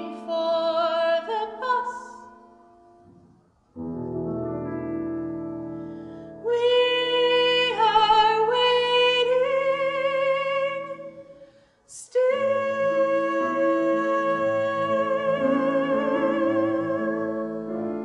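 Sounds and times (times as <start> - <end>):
woman singing with vibrato: 0.0 - 2.5, 6.4 - 11.3, 11.9 - 18.0
piano accompaniment: 0.0 - 11.3, 12.2 - 18.0.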